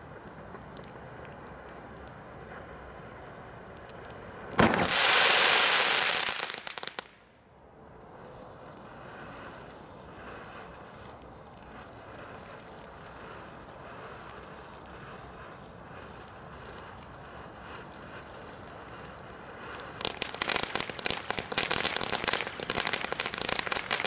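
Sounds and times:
firework fountain hissing and crackling: 0.0s - 24.0s
low steady hiss: 0.0s - 24.0s.

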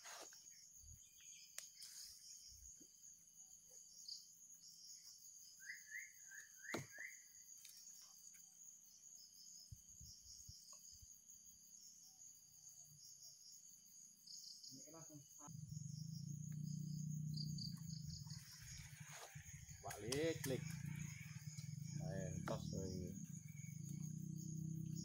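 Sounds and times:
insect chorus trilling: 0.0s - 25.0s
bird chirping: 3.8s - 8.2s, 14.2s - 25.0s.

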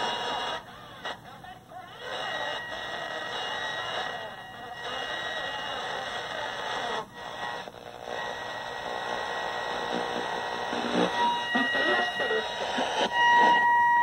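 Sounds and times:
speaker hiss and garbled audio: 0.0s - 14.0s
steady test tone: 8.2s - 14.0s.

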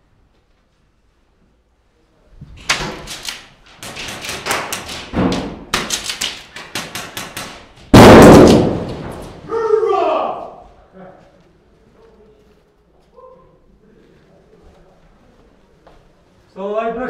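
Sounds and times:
airsoft gunfire cracks: 2.7s - 9.4s.

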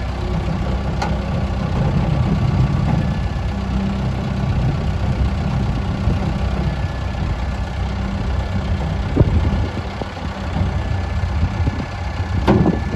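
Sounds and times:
loader bucket clunk: 0.0s - 12.9s
tractor diesel engine idling: 0.0s - 12.9s.

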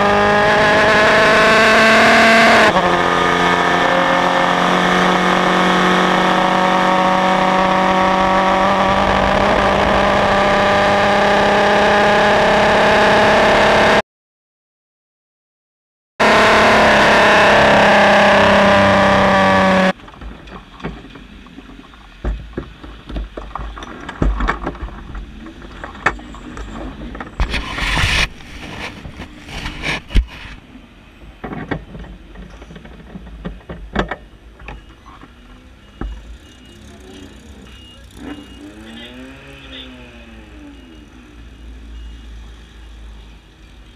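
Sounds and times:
race car engine at high revs: 0.0s - 14.0s, 16.2s - 20.0s, 25.8s - 30.6s, 35.9s - 41.4s
knocks and clicks from car: 20.0s - 27.7s, 31.4s - 35.3s.

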